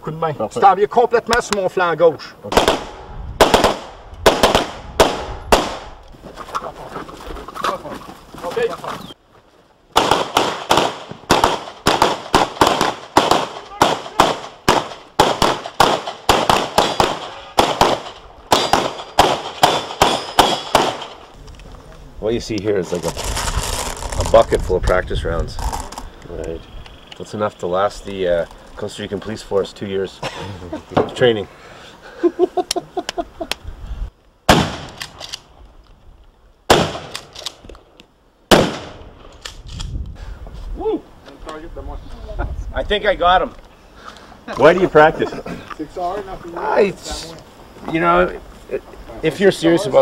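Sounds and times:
rapid gunfire: 2.5s - 5.9s, 10.0s - 21.2s
gunshots with echo: 2.5s - 6.0s, 10.0s - 21.2s.

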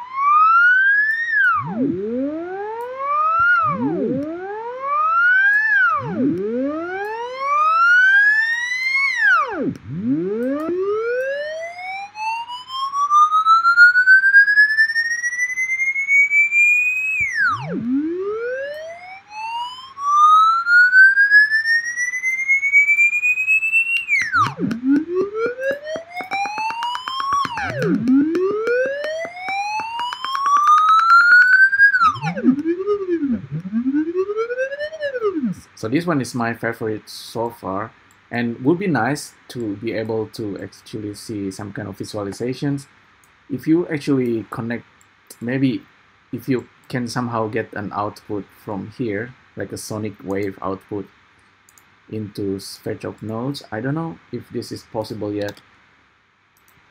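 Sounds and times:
synthesized siren-like tone: 0.0s - 35.8s.

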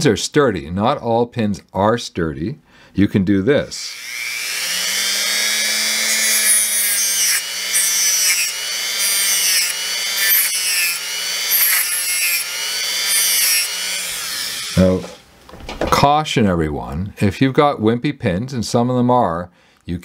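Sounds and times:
rotary tool high whine: 3.8s - 15.1s
rotary tool grinding bursts: 3.9s - 15.0s.

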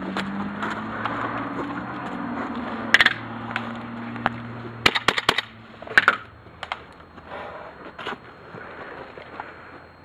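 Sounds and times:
airsoft rifle shots: 4.8s - 6.2s.

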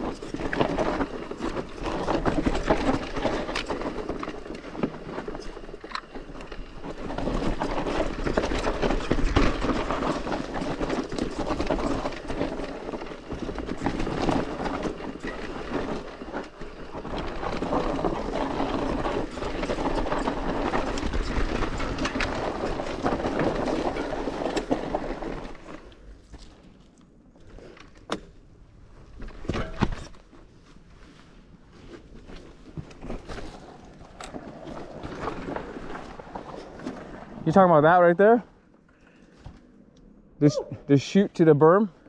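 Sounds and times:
bike clattering over bumps: 0.0s - 26.8s
bike tyres rolling on dirt: 0.0s - 42.0s.

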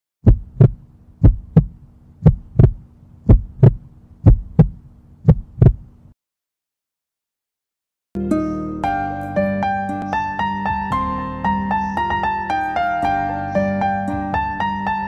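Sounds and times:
heartbeat thumps: 0.2s - 5.9s
low steady hum: 0.2s - 6.1s.

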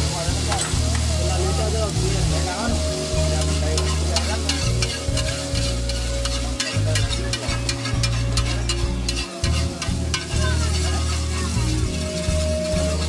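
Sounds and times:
background music: 0.0s - 13.0s
food sizzling: 0.0s - 13.0s
metal spatula clacking on griddle: 3.8s - 10.5s.

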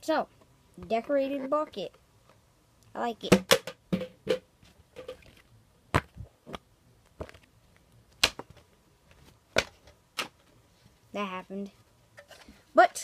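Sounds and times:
sharp knocks: 3.3s - 5.2s.

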